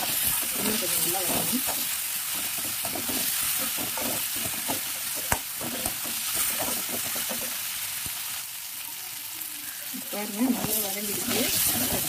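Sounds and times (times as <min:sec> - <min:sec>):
vegetables sizzling in hot oil: 0:00.0 - 0:12.0
metal spatula scraping pan: 0:10.4 - 0:12.0.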